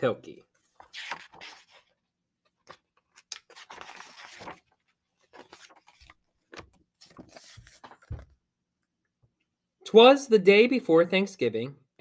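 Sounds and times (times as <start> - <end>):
book pages rustling: 0.6 - 8.4.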